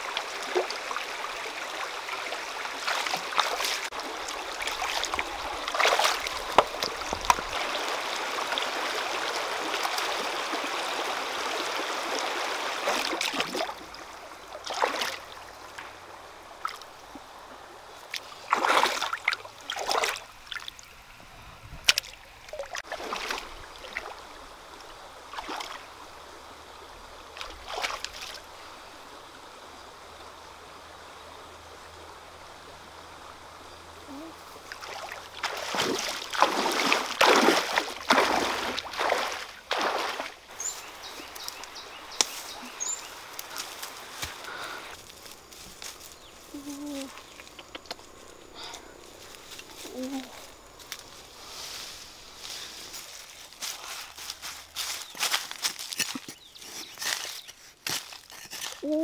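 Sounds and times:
rocky stream flowing: 0.0 - 58.8
splashing of feet wading: 2.7 - 10.8, 12.0 - 13.9, 14.5 - 16.0, 18.0 - 20.8, 21.8 - 24.2, 25.3 - 25.8, 27.4 - 28.5, 34.6 - 58.8.

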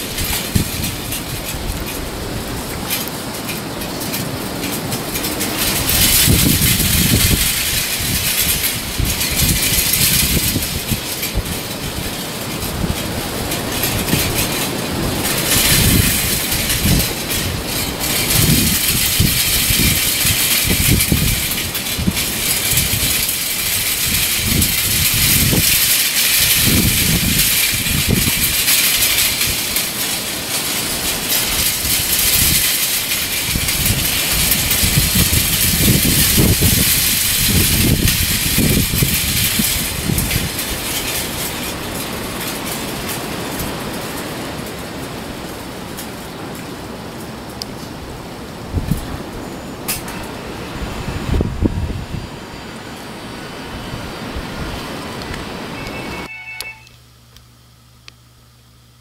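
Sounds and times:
pinwheels whirring and rattling: 0.0 - 46.6
wind buffeting microphone: 0.0 - 56.3.

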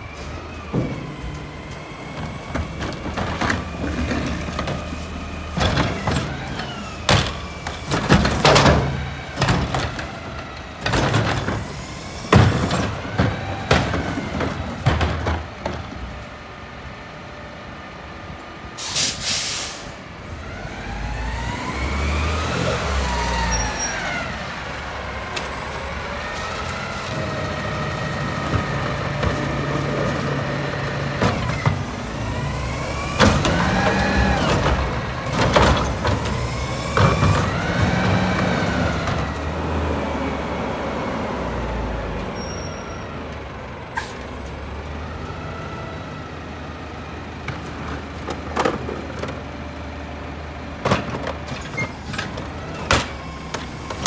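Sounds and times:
diesel engine revving: 19.3 - 42.6.

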